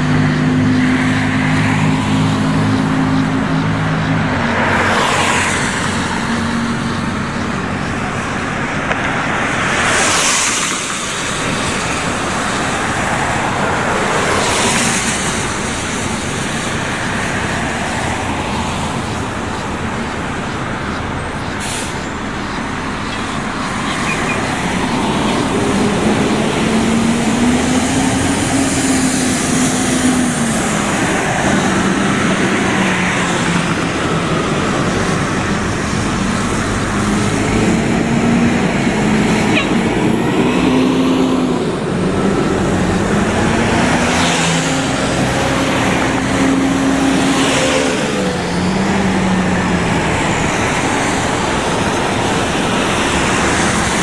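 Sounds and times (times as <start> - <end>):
bus engine and road noise: 0.0 - 54.0
humming tone of bus moving off: 0.0 - 54.0.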